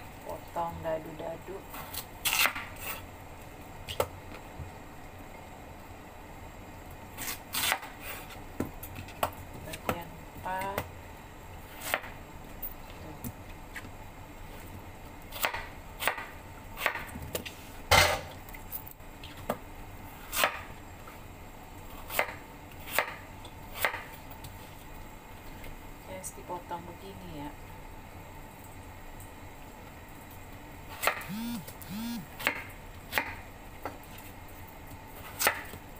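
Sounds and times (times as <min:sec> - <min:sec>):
knife chopping on wooden board: 0:15.3 - 0:17.5, 0:22.1 - 0:23.2, 0:23.8 - 0:24.2, 0:30.9 - 0:33.4, 0:35.3 - 0:35.8.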